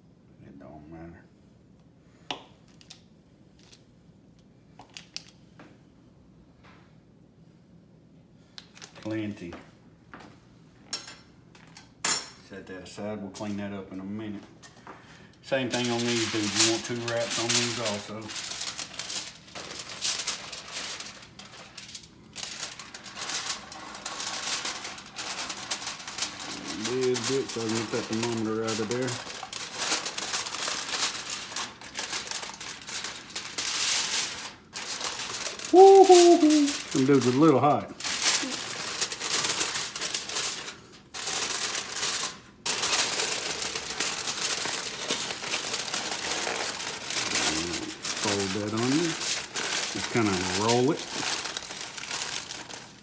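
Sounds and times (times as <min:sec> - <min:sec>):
aluminium foil crinkling: 0:08.6 - 0:09.2, 0:15.4 - 0:53.0.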